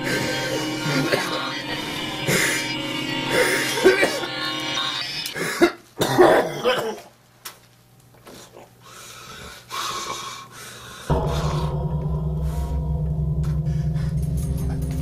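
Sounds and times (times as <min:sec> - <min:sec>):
low droning score: 0:00.0 - 0:05.4, 0:11.1 - 0:15.0.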